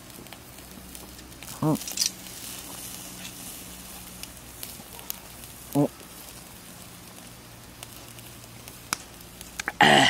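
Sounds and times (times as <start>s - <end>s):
charcoal grill ticking: 0.0s - 9.8s
throaty gulp of beer: 9.7s - 10.0s.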